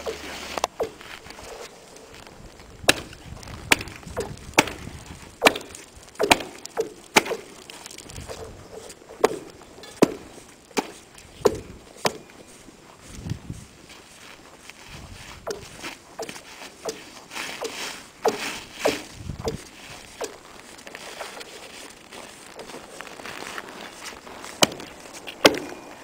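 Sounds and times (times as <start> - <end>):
hatchet chopping ice: 5.4 - 7.5, 24.6 - 25.7.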